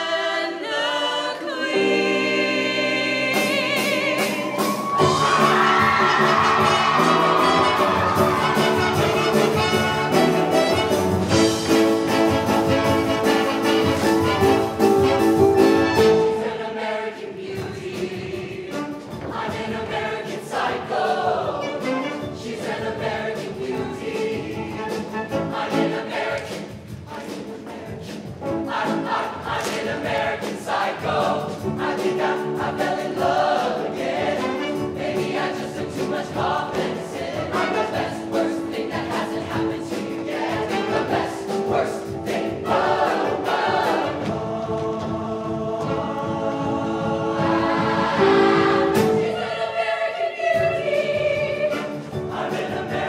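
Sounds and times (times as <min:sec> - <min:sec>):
choir singing pop song: 0:00.0 - 0:53.0
instrumental accompaniment with beat: 0:03.4 - 0:49.6, 0:50.6 - 0:53.0.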